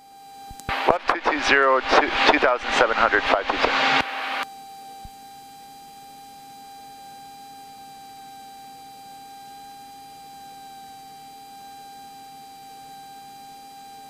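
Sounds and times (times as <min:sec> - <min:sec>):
steady electronic tone: 0:00.7 - 0:04.5.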